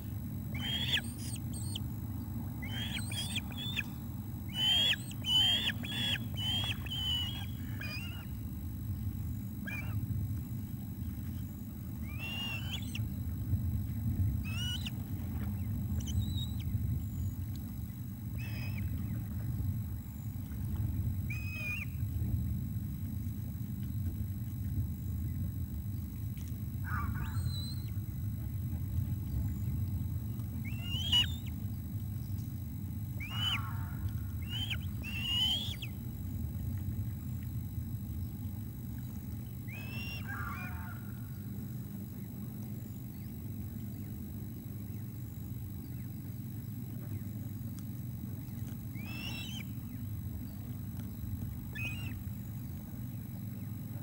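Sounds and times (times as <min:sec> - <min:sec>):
steady low rumble: 0:00.0 - 0:54.0
osprey high calls: 0:00.5 - 0:01.8, 0:02.6 - 0:08.4, 0:09.6 - 0:10.0, 0:12.0 - 0:13.1, 0:14.4 - 0:15.0, 0:18.3 - 0:19.2, 0:21.3 - 0:22.0, 0:26.8 - 0:28.0, 0:30.6 - 0:31.5, 0:33.2 - 0:36.0, 0:39.6 - 0:41.3, 0:48.6 - 0:50.0, 0:51.6 - 0:52.4.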